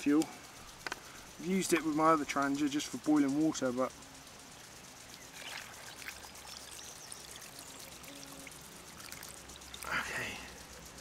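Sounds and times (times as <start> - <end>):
water trickling into pot: 5.0 - 10.8.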